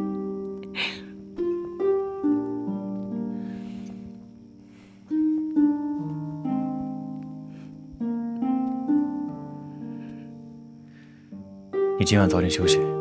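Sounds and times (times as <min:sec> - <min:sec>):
slow plucked chords: 0:00.0 - 0:13.0.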